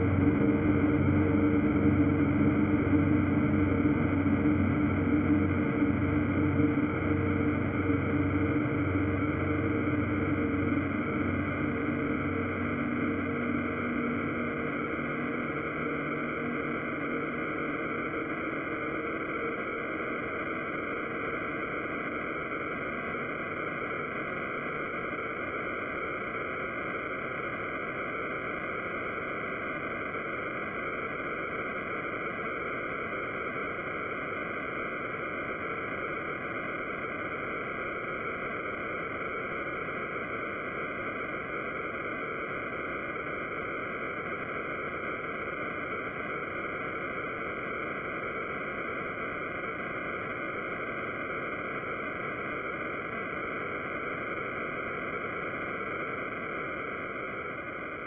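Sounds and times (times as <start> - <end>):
faint held low tones: 0.0 - 18.1
synthesized noise music: 0.0 - 24.5.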